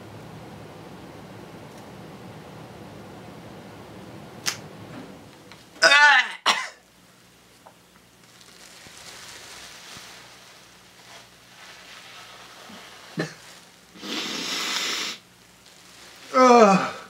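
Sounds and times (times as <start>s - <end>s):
towel rustling: 8.1s - 17.0s.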